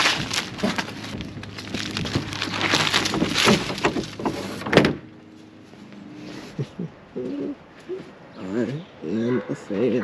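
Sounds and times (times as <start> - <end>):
tape crinkling: 0.0 - 4.6.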